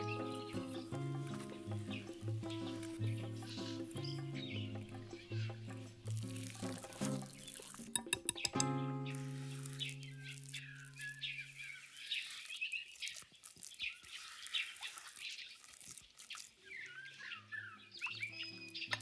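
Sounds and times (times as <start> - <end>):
high chirping calls: 0.0 - 6.4, 7.4 - 19.0
soft background music: 0.0 - 11.0.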